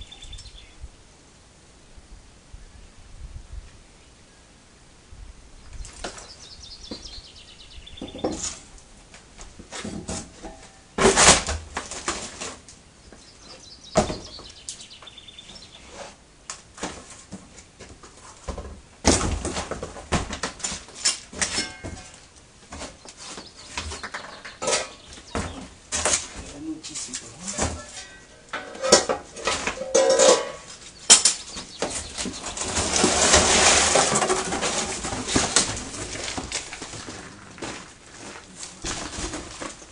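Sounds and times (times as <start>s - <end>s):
cardboard rustling: 11.0s - 12.7s, 31.6s - 39.9s
metal parts clunking: 21.0s - 22.2s, 24.4s - 25.0s, 27.5s - 36.7s.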